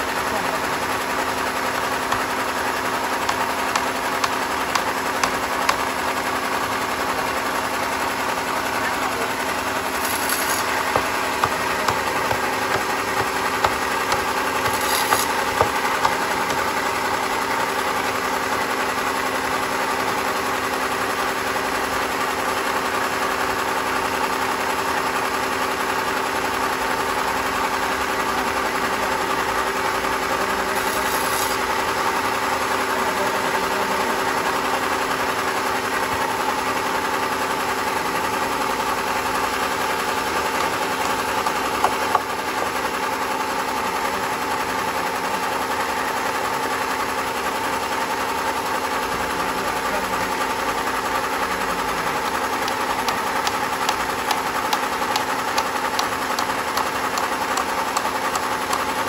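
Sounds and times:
band saw humming: 0.0s - 17.8s, 29.9s - 44.3s, 51.1s - 59.0s
hammer knocking on log: 3.2s - 5.9s, 10.3s - 16.8s, 40.4s - 42.8s, 52.6s - 58.9s.

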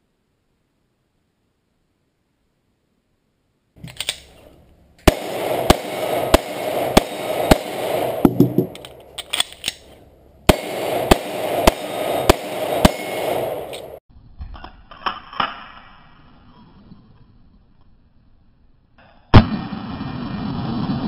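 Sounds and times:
metallic clicks of gun handling: 3.8s - 4.5s, 8.7s - 10.0s, 13.7s - 13.9s
pistol shots: 5.0s - 9.5s, 10.5s - 14.0s.

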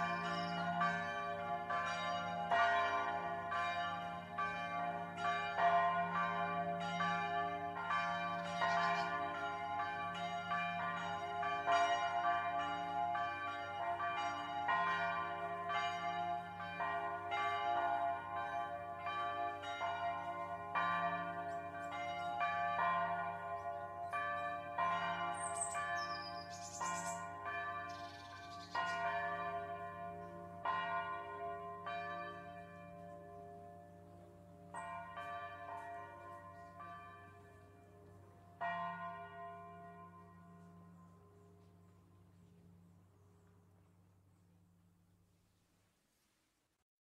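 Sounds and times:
church bells ringing: 0.0s - 42.8s.

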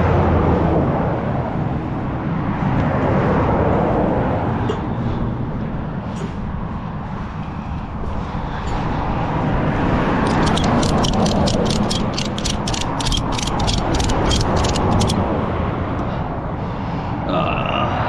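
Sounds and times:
ratchet pawl clicking: 10.2s - 15.2s.

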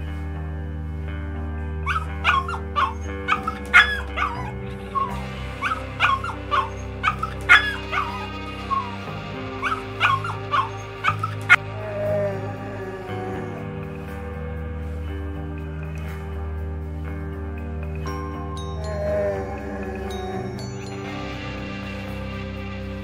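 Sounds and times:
soft background music: 0.0s - 23.0s
puppy yipping and barking: 1.9s - 9.0s, 9.6s - 11.6s.

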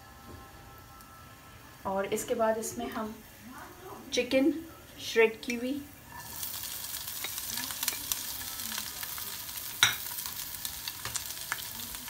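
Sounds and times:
chicken sizzling in hot oil: 5.9s - 12.0s.

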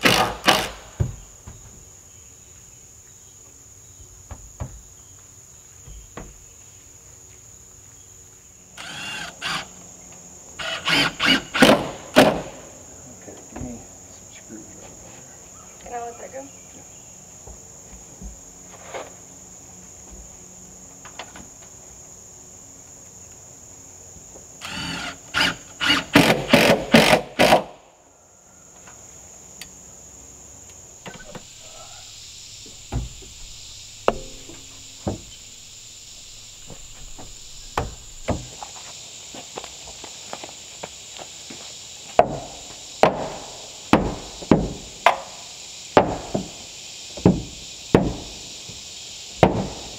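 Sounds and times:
hammer nailing wood: 0.0s - 1.1s, 10.8s - 12.5s, 25.0s - 27.7s, 34.1s - 35.2s, 42.2s - 45.2s, 46.0s - 46.5s, 47.2s - 48.2s, 49.4s - 49.8s
high insect drone: 0.0s - 49.9s.

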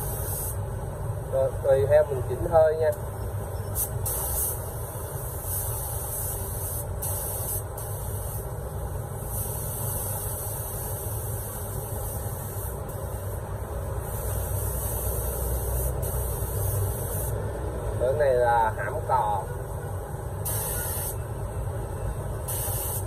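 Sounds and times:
spray gun hissing: 0.0s - 0.6s, 3.8s - 4.6s, 5.2s - 8.5s, 9.2s - 13.4s, 14.0s - 17.4s, 20.4s - 21.2s, 22.5s - 23.0s.

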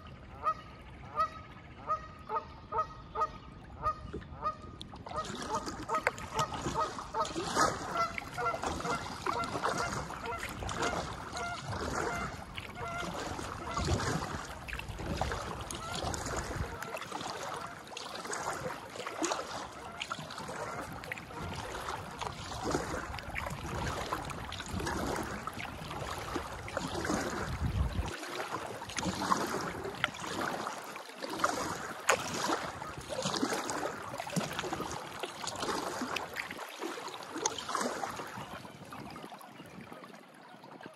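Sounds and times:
kayak paddle splashing: 0.0s - 40.9s
geese honking: 0.4s - 13.8s.

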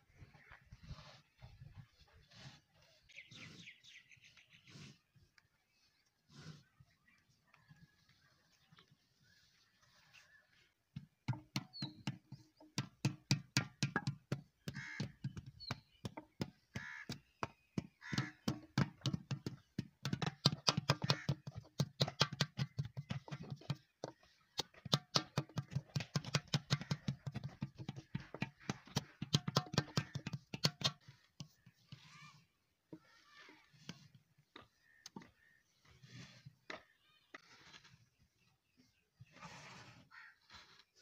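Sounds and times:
wooden paddle slapping wet clay pot: 11.1s - 32.2s.

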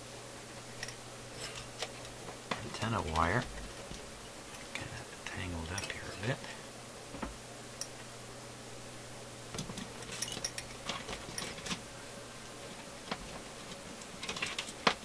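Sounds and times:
faint low hum: 0.0s - 15.0s
wire clinking on metal: 0.7s - 4.9s, 5.6s - 6.4s, 9.6s - 11.8s.

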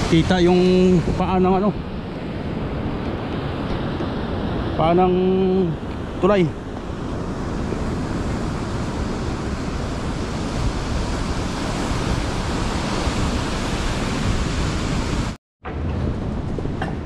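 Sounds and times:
ocean surf breaking: 0.0s - 17.0s
wind rumbling on microphone: 0.0s - 17.0s.

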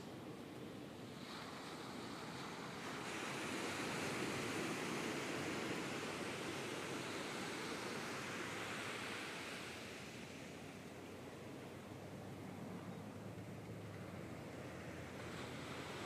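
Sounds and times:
ocean surf breaking on beach: 0.0s - 16.0s.

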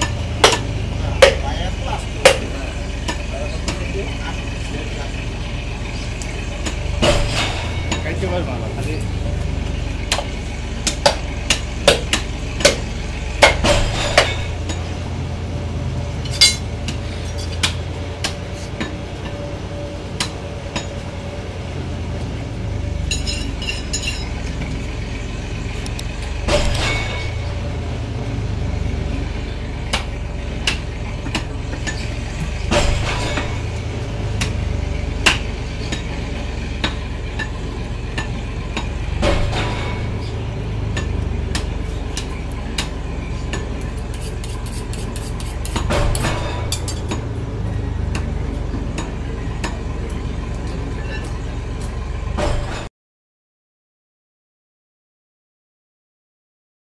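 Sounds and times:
knife on wooden chopping block: 44.0s - 47.1s.

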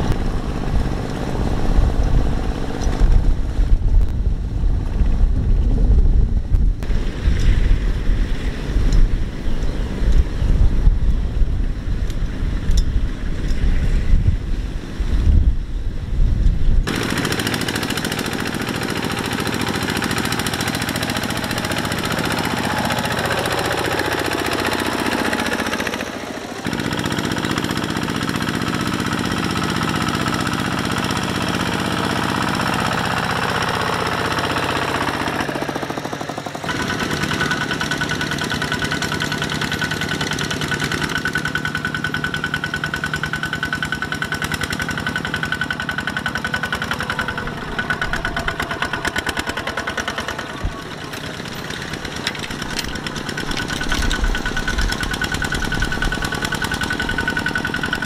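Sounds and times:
diesel tractor engines knocking: 16.9s - 58.0s.

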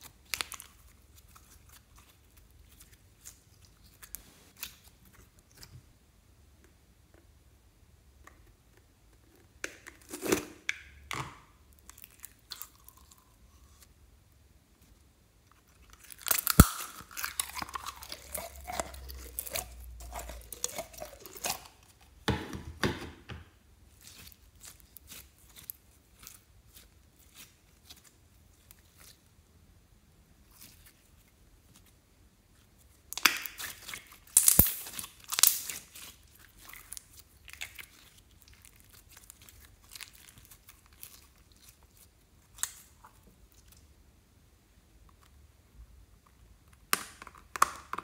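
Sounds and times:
slime squelching and popping: 0.0s - 5.8s, 15.6s - 22.9s, 30.4s - 43.9s
plastic tub clicks and knocks: 22.3s - 23.5s.

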